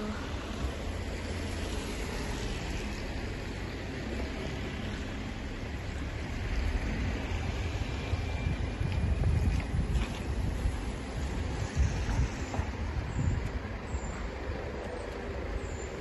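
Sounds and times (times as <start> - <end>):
wet street noise hiss: 0.0 - 16.0
wind buffeting microphone: 5.4 - 16.0.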